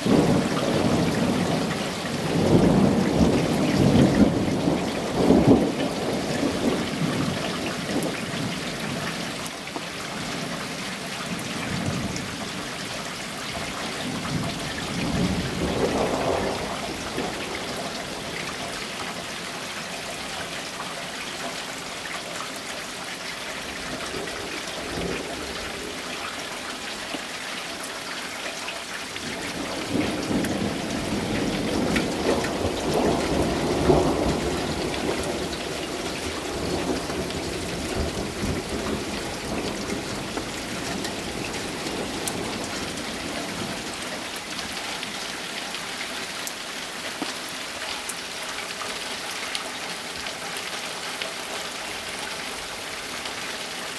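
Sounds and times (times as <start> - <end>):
steady rain hissing: 0.0 - 53.9
thunder rolling: 0.1 - 8.2, 14.1 - 18.4, 29.3 - 44.0.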